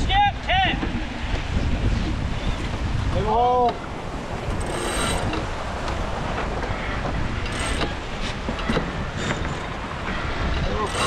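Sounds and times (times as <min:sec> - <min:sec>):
rush of wind and water: 0:00.0 - 0:11.0
deck gear clicks and creaks: 0:03.5 - 0:11.0.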